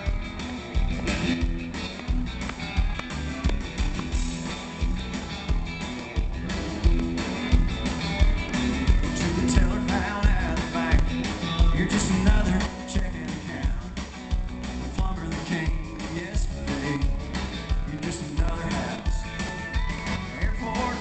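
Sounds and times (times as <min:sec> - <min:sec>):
drums keeping a beat: 0:00.0 - 0:21.0
electric guitar: 0:00.0 - 0:21.0
lead vocal singing: 0:09.0 - 0:14.0, 0:15.0 - 0:17.2, 0:17.8 - 0:19.6, 0:20.2 - 0:21.0.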